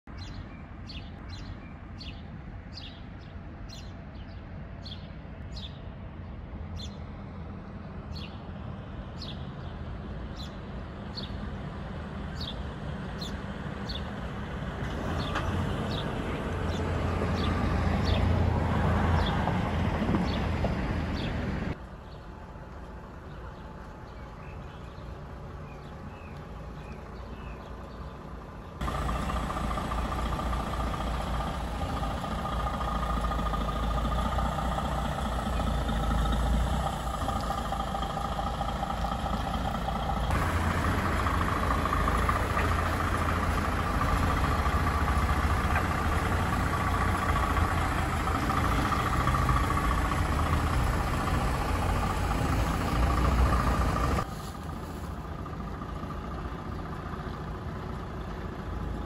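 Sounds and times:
bird chirping: 0:00.1 - 0:05.9, 0:23.2 - 0:50.3
truck diesel engine passing: 0:00.1 - 0:59.0.

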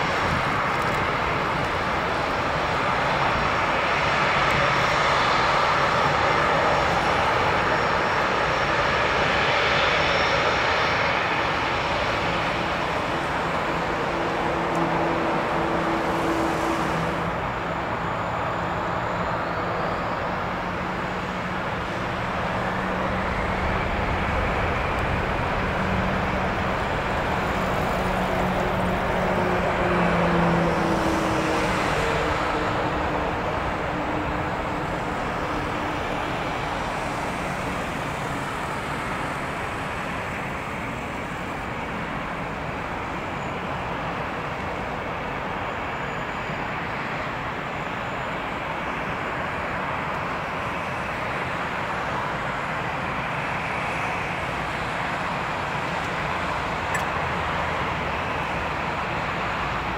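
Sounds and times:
low engine hum: 0:00.0 - 0:43.3
jet engine roar: 0:00.0 - 0:59.9.

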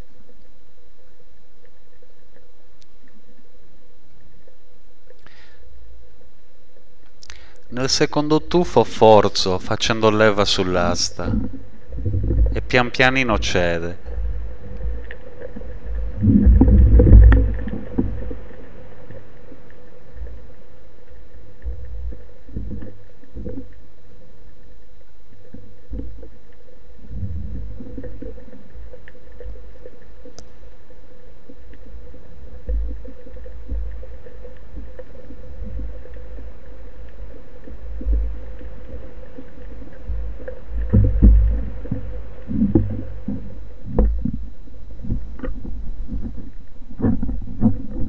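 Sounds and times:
underwater rumble of moving water: 0:07.8 - 0:48.0
water sloshing and splashing: 0:13.4 - 0:23.9, 0:25.4 - 0:30.6, 0:31.5 - 0:48.0.

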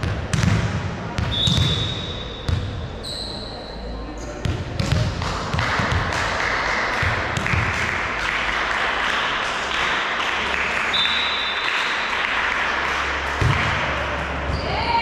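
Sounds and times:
spectators clapping: 0:05.1 - 0:14.4.

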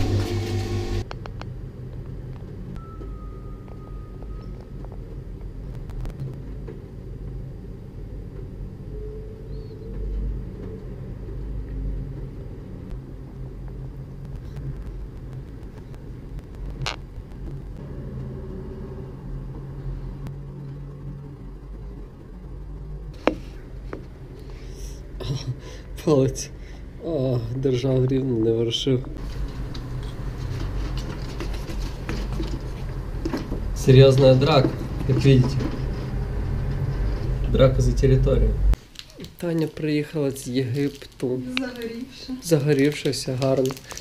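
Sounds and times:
engine hum: 0:00.0 - 0:38.8
city traffic rumble: 0:00.0 - 0:44.0
faint high steady tone: 0:02.8 - 0:05.2.

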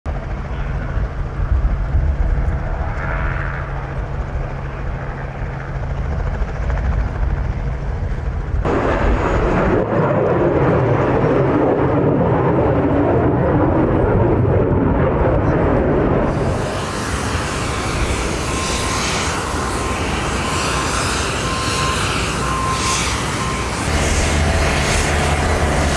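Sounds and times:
jet roar at takeoff: 0:00.1 - 0:25.9
low engine hum: 0:13.9 - 0:25.9.

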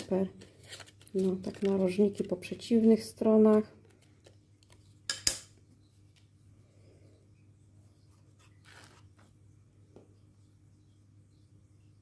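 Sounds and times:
paper rustling: 0:00.0 - 0:02.6, 0:08.1 - 0:09.4
low steady hum: 0:00.0 - 0:12.0.

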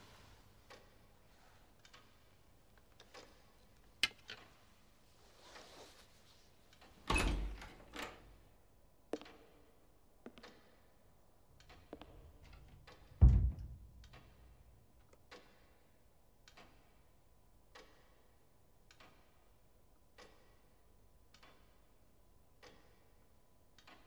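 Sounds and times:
heavy wooden door slamming: 0:13.2 - 0:14.4
dull thud: 0:13.2 - 0:14.5.

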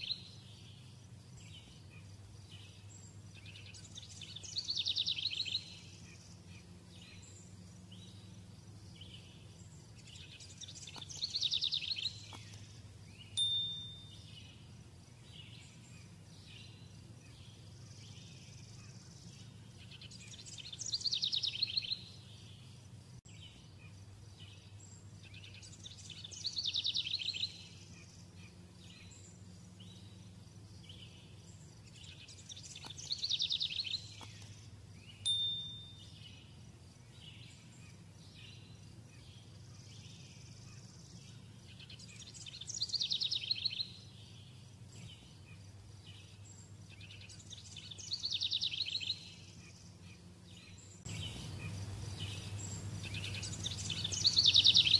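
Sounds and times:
steady low hum: 0:00.0 - 0:54.9
bird high trill: 0:13.3 - 0:14.7, 0:35.1 - 0:36.5.

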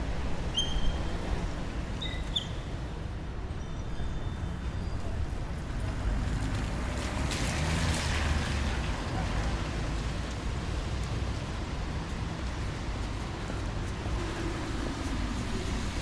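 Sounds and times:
low rumble of traffic: 0:00.0 - 0:16.0
car tyres hissing on wet road: 0:06.5 - 0:16.0.

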